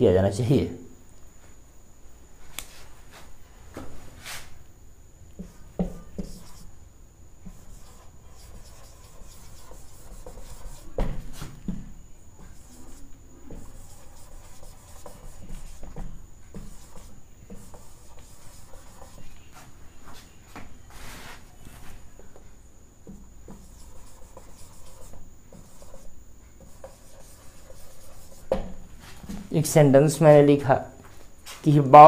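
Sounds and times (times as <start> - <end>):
marker squeaking on whiteboard: 5.4 - 6.7, 7.5 - 11.2, 12.4 - 20.2, 23.4 - 28.6.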